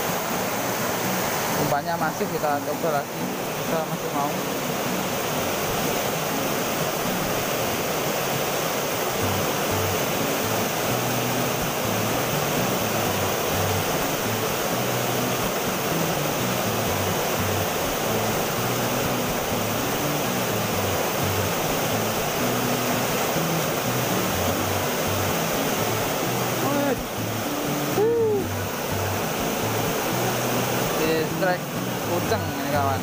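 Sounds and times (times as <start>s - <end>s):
water rushing over rocks: 0.0s - 33.0s
background music: 9.0s - 33.0s.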